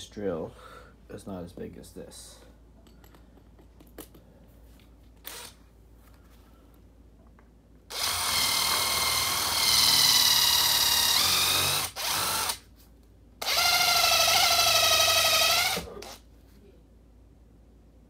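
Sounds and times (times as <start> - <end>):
electric drill whining: 5.2 - 5.6, 7.9 - 12.6, 13.4 - 16.2.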